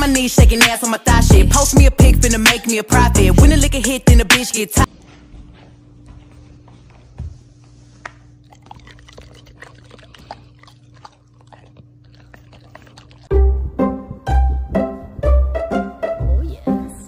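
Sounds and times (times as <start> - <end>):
dog chewing and licking: 8.3 - 13.3.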